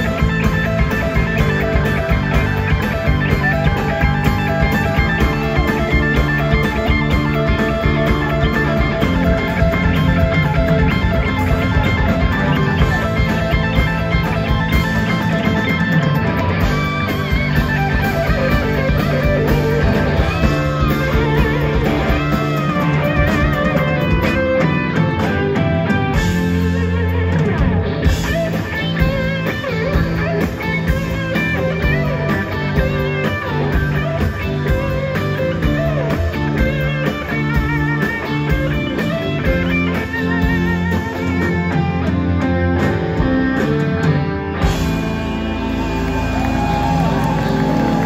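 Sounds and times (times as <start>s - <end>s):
blues-rock band playing: 0.0s - 48.0s
electric guitar lead with bent notes: 0.0s - 48.0s.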